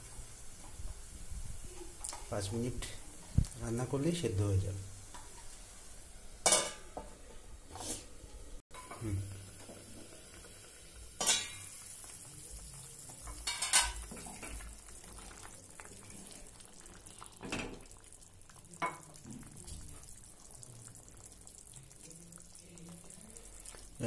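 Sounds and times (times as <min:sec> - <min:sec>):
pot lid clanking: 0:06.4 - 0:07.0, 0:11.2 - 0:11.7
soup boiling: 0:07.7 - 0:24.0.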